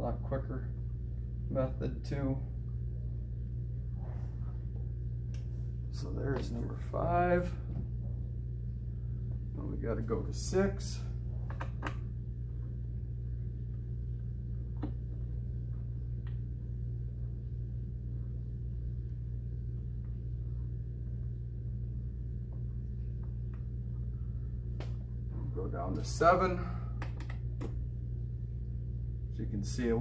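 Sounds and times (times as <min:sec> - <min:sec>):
low electrical hum: 0:00.0 - 0:30.0.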